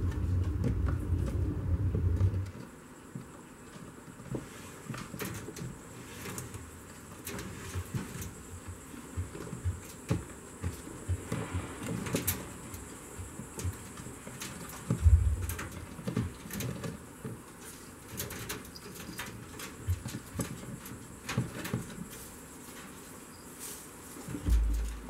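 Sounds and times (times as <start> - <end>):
rustling bedding: 14.2 - 16.9, 19.8 - 25.0
dull thump: 15.0 - 15.6, 24.3 - 25.0.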